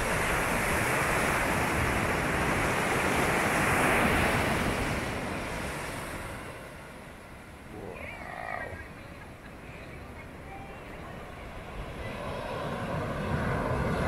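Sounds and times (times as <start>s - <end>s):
ocean surf breaking on beach: 0.0s - 14.0s.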